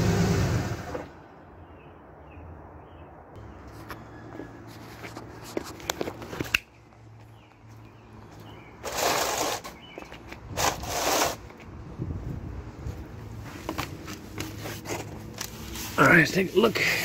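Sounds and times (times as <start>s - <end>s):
cardboard rustling on asphalt: 3.4s - 17.0s.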